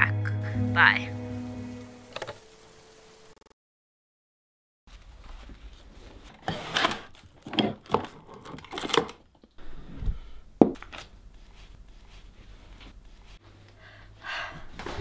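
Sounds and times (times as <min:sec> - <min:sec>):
banknotes rustling: 0:10.8 - 0:13.4.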